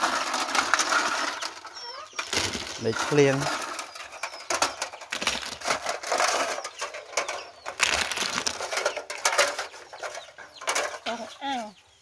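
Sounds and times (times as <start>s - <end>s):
snail shells clicking: 7.6s - 8.7s.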